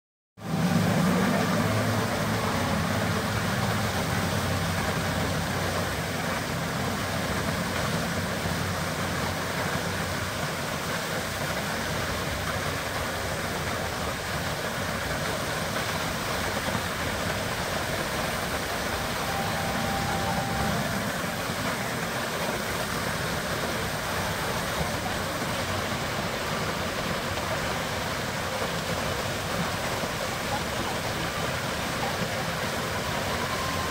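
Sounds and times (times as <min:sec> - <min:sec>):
low hum: 0:00.4 - 0:09.2, 0:16.0 - 0:26.0
fountain water jet splashing: 0:00.4 - 0:33.9.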